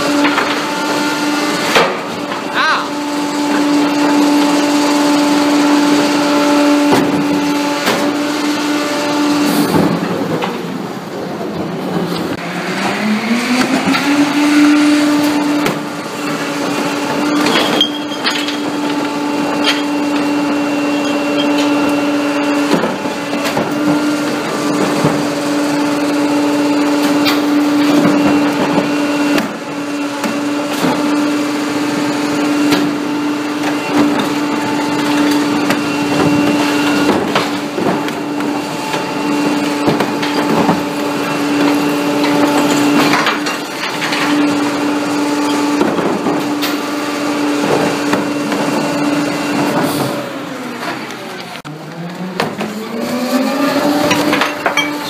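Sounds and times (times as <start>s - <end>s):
clanks of cart and recyclables: 0.0s - 55.0s
garbage truck hydraulics humming: 0.0s - 55.0s.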